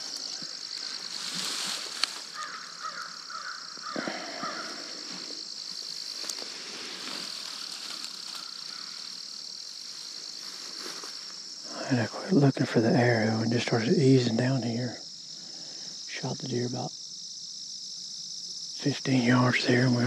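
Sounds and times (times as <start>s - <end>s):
bird calling: 0.0s - 5.4s, 7.7s - 9.2s
insects trilling: 0.0s - 20.0s.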